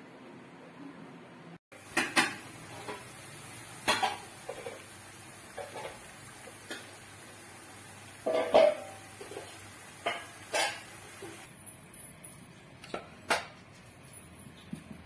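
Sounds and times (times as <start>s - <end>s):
metal utensils knocking on pots: 1.8s - 3.1s, 3.8s - 4.9s, 8.2s - 11.5s.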